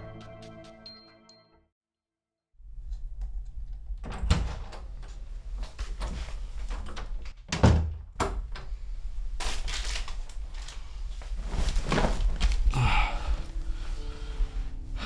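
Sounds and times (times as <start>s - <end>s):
soft rustling and movement: 8.7s - 12.7s.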